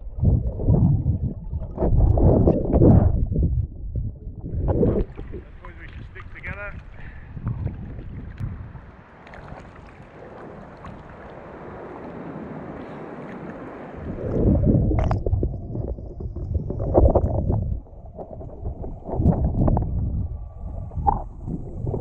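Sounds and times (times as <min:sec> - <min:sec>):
sea water splashing: 0:00.0 - 0:03.5, 0:04.4 - 0:22.0
muffled underwater rumble: 0:00.0 - 0:08.8, 0:14.0 - 0:22.0.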